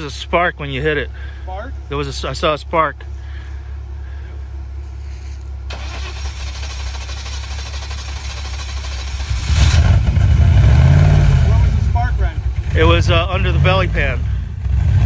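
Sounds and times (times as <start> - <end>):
engine running and revving: 6.6 - 15.0.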